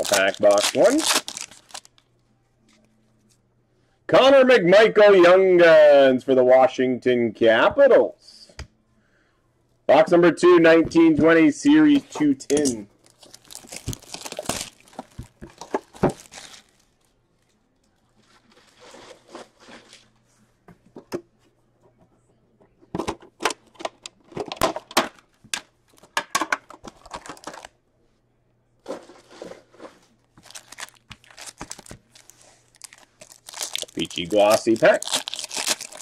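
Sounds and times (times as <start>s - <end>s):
foil packs crinkling: 0.0s - 2.0s, 13.0s - 17.1s, 26.9s - 27.7s, 30.3s - 36.0s.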